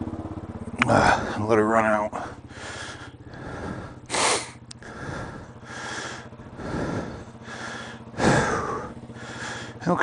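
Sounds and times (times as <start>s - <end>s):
motorcycle engine idling: 0.0s - 10.0s
loud breathy hisses: 2.6s - 9.8s.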